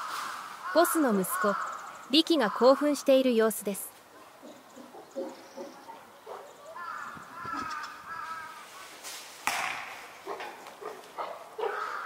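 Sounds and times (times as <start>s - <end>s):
crows cawing: 0.0s - 3.0s, 6.6s - 8.9s, 9.7s - 12.0s.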